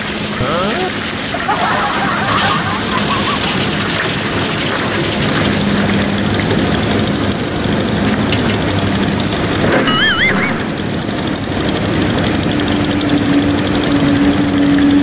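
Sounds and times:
excavator diesel engine humming: 0.0s - 15.0s.

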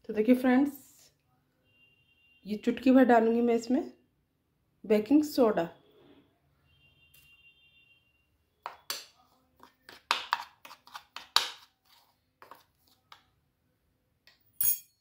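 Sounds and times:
metal spoon scraping a bowl: 8.7s - 13.2s.

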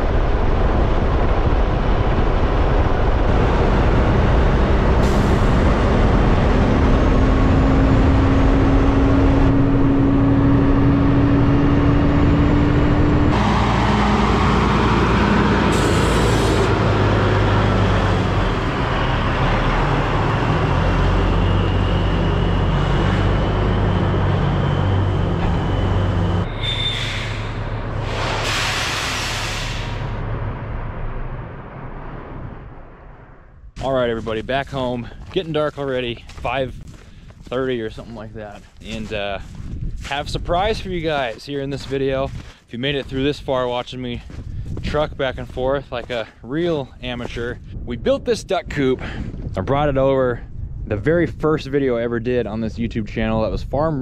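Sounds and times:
diesel truck engine drone: 0.0s - 48.0s
wind and road noise: 0.0s - 54.0s
air hissing bursts: 26.8s - 30.2s.

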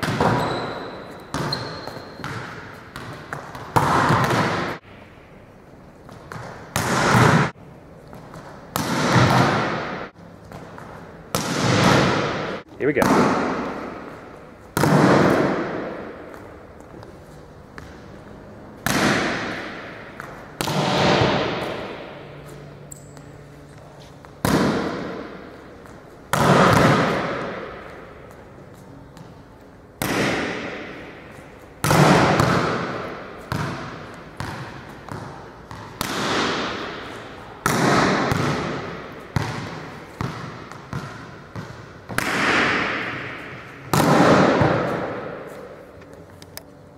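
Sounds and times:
volleyball smacks echoing: 0.0s - 4.8s, 6.3s - 7.5s, 8.4s - 16.4s, 18.8s - 22.3s, 24.4s - 25.5s, 26.3s - 28.0s, 30.0s - 45.8s.

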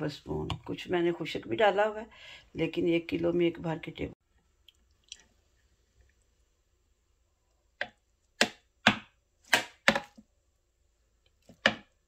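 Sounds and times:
metal spoon tapping plastic bowl: 7.8s - 10.2s.

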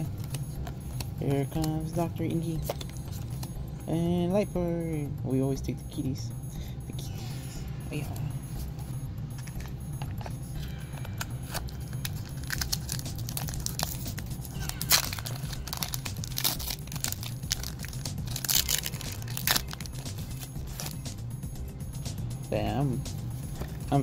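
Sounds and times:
foil wrapper crinkling: 11.0s - 21.0s.

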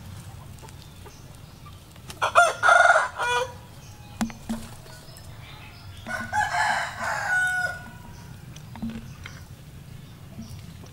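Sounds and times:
rooster crowing: 2.2s - 4.3s, 5.5s - 8.5s.

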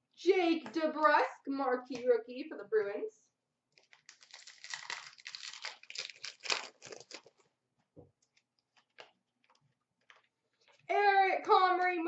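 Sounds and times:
foil wrapper tearing and crinkling: 3.7s - 7.5s.

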